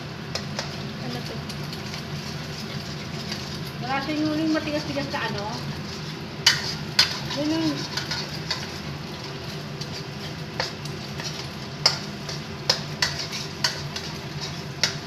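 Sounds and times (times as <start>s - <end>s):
egg sizzling in a wok: 0.0s - 15.0s
spatula clacking against pan: 5.8s - 8.8s, 9.8s - 15.0s.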